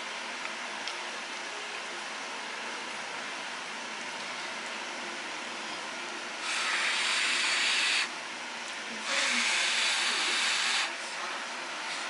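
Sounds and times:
person blowing on food: 6.4s - 8.1s, 9.1s - 11.0s.

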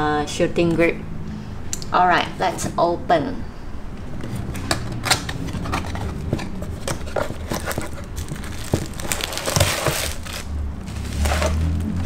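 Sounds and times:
cardboard box being opened: 4.2s - 12.0s
paper crinkling and rustling: 4.4s - 12.0s.

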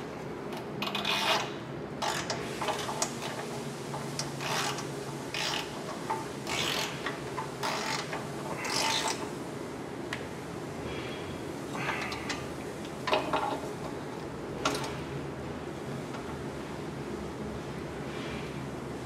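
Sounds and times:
ratchet clicking: 4.1s - 9.3s.

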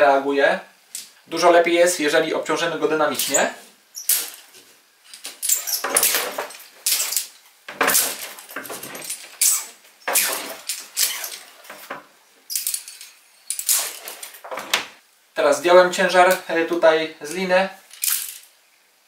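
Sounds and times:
carabiners clinking: 3.2s - 14.8s, 17.3s - 18.5s
rope rasping through clamp: 5.1s - 12.0s.

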